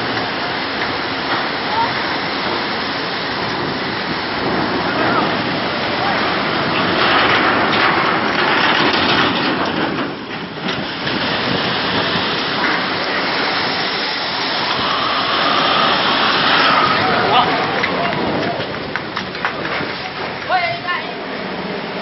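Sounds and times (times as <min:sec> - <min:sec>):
rough sea crashing over boat: 0:00.0 - 0:22.0.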